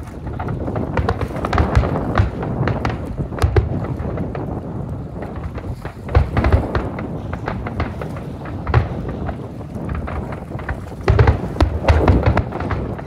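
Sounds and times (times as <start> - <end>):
fireworks booming and cracking: 0.0 - 13.0.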